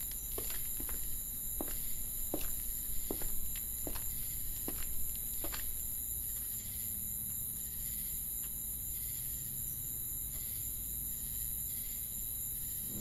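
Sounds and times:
soft footstep: 0.0s - 6.0s
crickets chirping: 0.0s - 13.0s.

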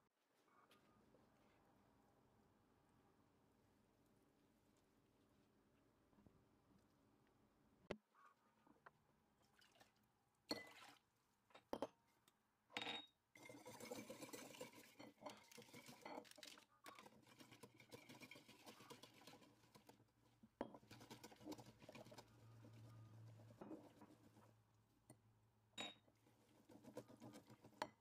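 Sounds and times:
liquid pouring into a bowl: 9.4s - 11.0s, 13.4s - 19.9s
glass clinking: 12.8s - 16.4s, 25.8s - 26.0s
whisk stirring in glass bowl: 13.4s - 24.5s, 26.2s - 28.0s.

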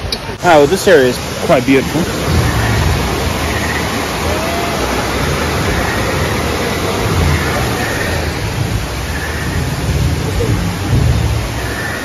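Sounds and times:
loud rushing noise: 0.4s - 12.0s
uneven low rumble: 1.2s - 12.0s.

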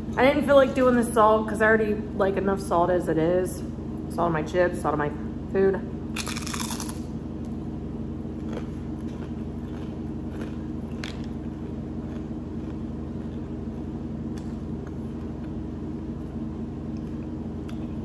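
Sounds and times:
steady low hum: 0.0s - 18.0s
crunchy chip bite: 6.2s - 7.1s, 8.4s - 13.6s
chewing crunches: 6.2s - 18.0s.

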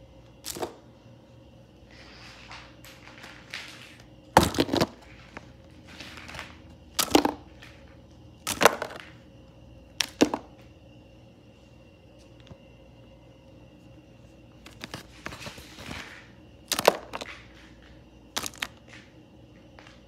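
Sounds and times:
plastic toys clattering: 14.6s - 18.8s.

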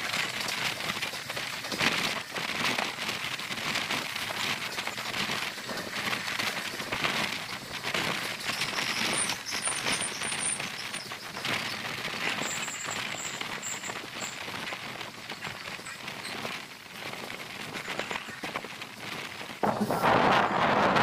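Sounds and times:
train running noise: 0.0s - 21.0s
wind buffeting microphone: 10.0s - 21.0s.

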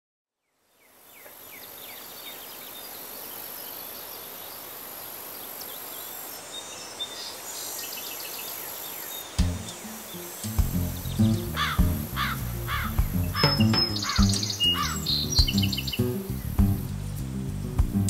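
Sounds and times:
bird chirps: 5.4s - 16.9s
distant city noise: 9.2s - 18.0s.

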